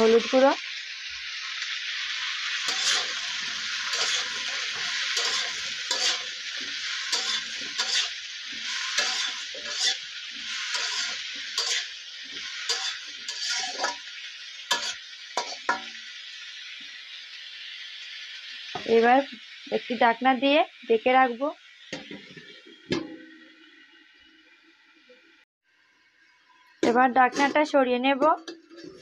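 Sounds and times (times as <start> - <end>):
vegetables sizzling in hot oil: 0.0 - 29.0
spatula scraping and knocking pan: 2.6 - 14.1, 14.7 - 16.0, 26.8 - 29.0.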